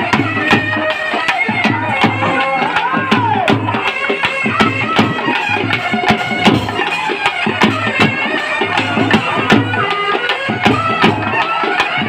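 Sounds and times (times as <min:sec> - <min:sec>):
double-headed drums beating fast: 0:00.0 - 0:12.0
high reedy melody: 0:00.0 - 0:12.0.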